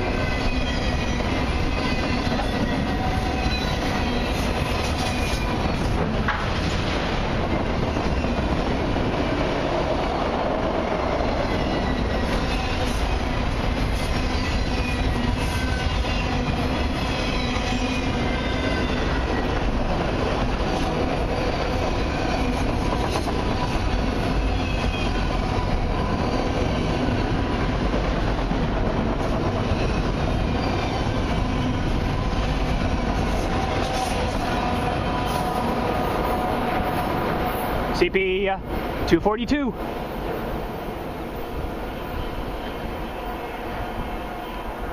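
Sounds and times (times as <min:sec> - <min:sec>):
steel wheels rolling on rails: 0:00.0 - 0:39.1
high-pitched wheel squeals: 0:00.2 - 0:05.9.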